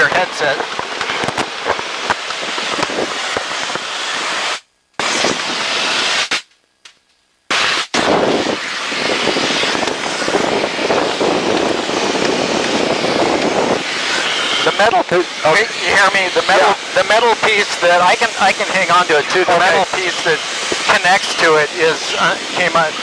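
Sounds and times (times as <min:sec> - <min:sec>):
wind buffeting open cockpit: 0:00.0 - 0:04.4, 0:08.0 - 0:23.0.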